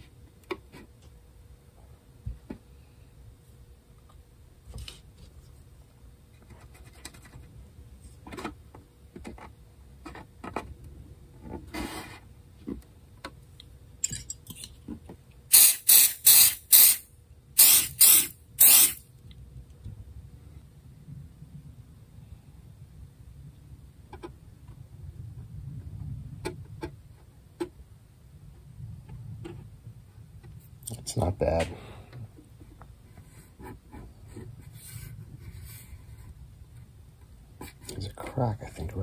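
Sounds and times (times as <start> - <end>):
spray bottle hisses: 15.5 - 17.0, 17.6 - 19.0.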